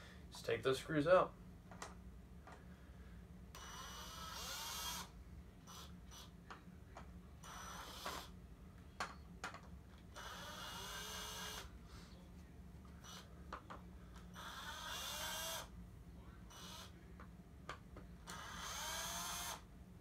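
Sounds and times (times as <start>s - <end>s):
power drill whine: 3.6s - 5.1s, 7.4s - 8.3s, 10.2s - 11.7s, 14.4s - 15.7s, 18.3s - 19.6s.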